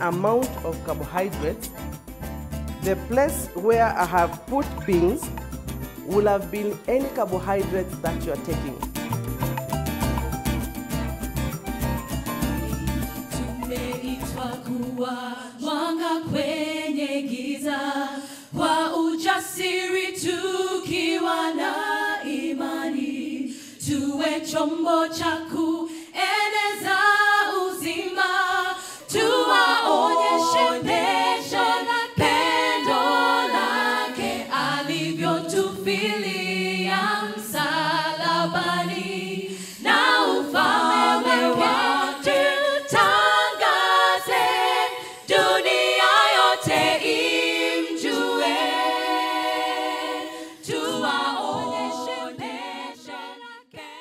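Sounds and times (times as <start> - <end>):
women singing a cappella: 0.0 - 1.6, 13.3 - 54.0.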